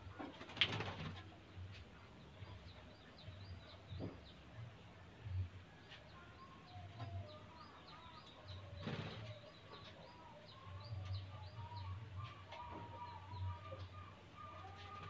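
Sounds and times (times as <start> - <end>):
bird wingbeats flutter: 0.3 - 1.3.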